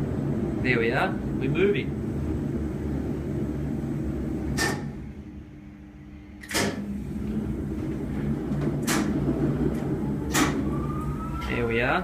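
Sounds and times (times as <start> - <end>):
crane motor humming: 0.0 - 12.0
sharp machinery clunks: 4.6 - 5.0, 6.4 - 6.9, 8.8 - 9.2.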